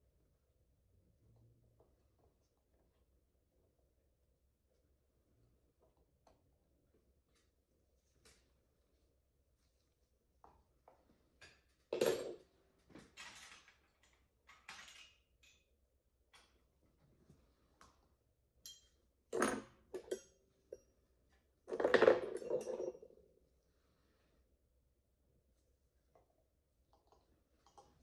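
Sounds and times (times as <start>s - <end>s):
metal dental instruments clinking: 18.6s - 19.0s.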